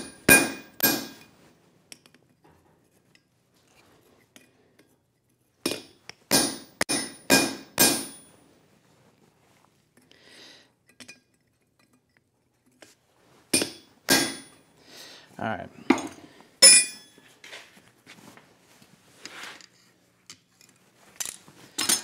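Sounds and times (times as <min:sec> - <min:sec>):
hammer striking punch on anvil: 0:00.0 - 0:01.3, 0:05.7 - 0:08.2, 0:13.6 - 0:14.5, 0:15.9 - 0:17.1.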